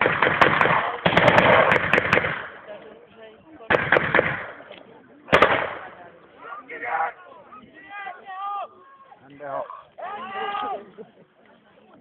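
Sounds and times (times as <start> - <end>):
blank gunshots echoing: 0.0 - 2.7, 3.7 - 4.6, 5.3 - 6.0.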